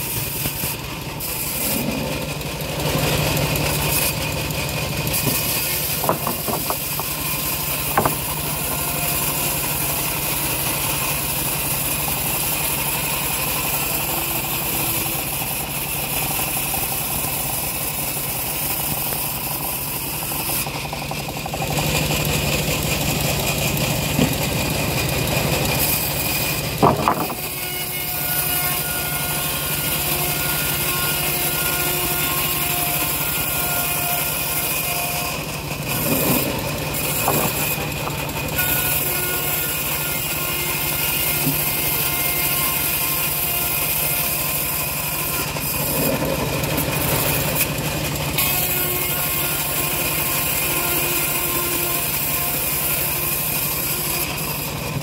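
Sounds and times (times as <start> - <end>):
bandsaw sawmill drone: 0.0 - 55.0
wood knocking on saw table: 5.1 - 7.2, 7.8 - 8.4, 26.8 - 27.5, 37.1 - 38.2.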